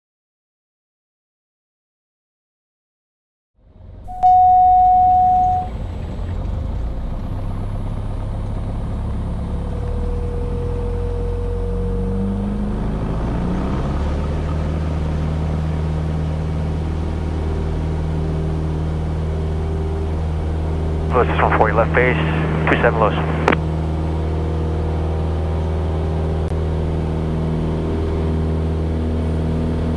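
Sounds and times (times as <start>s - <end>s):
propeller plane engine drone: 3.7s - 29.9s
short steady tone: 4.1s - 5.8s.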